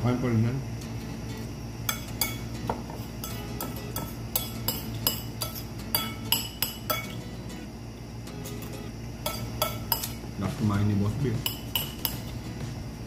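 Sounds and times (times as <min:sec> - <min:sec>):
metal spoon clinking on ceramic bowl: 0:01.9 - 0:02.5, 0:03.2 - 0:07.2, 0:09.2 - 0:10.2, 0:11.4 - 0:12.4.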